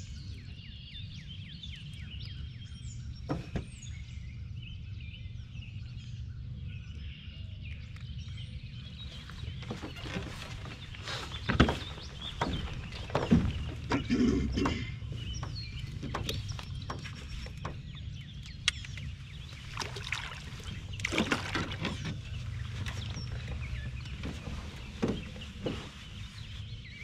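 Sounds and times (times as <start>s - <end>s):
songbirds chirping: 0.0s - 27.0s
knocks and thumps in canoe: 3.2s - 3.8s, 9.2s - 26.4s.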